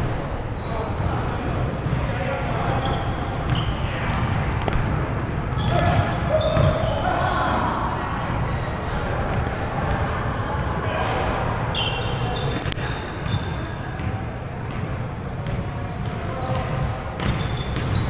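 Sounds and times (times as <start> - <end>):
players' voices echoing: 0.0 - 18.0
sneakers squeaking on hardwood: 0.5 - 7.0, 10.6 - 18.0
basketball bouncing: 5.6 - 6.9, 14.0 - 15.7, 16.6 - 18.0.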